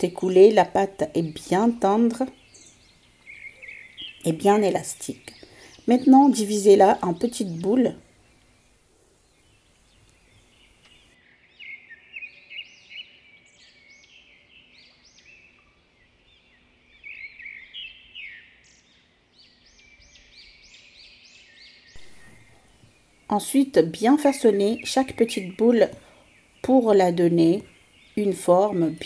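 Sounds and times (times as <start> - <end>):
small birds chirping: 0.0 - 29.0.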